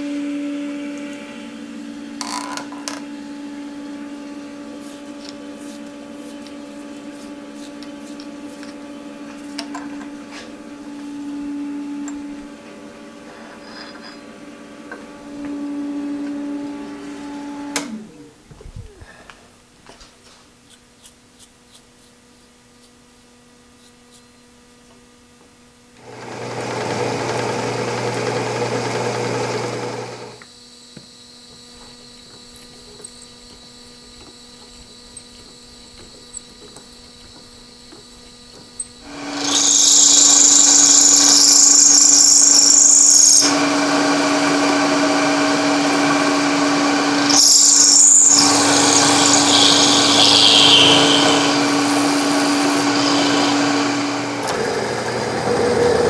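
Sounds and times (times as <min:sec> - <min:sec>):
milling machine motor hum: 0:00.0 - 0:18.4, 0:26.0 - 0:56.0
hissing metal cutting: 0:38.8 - 0:56.0.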